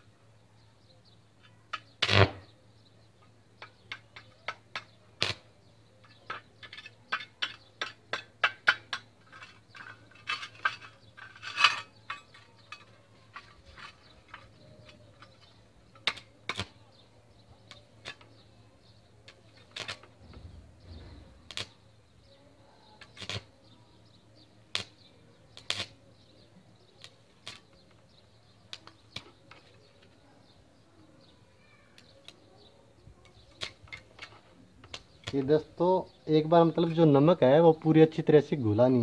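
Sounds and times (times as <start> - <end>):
arc welder sparks crackling: 1.8 - 2.6, 3.6 - 6.2, 13.6 - 16.8, 19.3 - 21.9, 23.0 - 23.5, 24.6 - 26.0, 26.8 - 28.0, 28.6 - 29.8, 33.3 - 35.8.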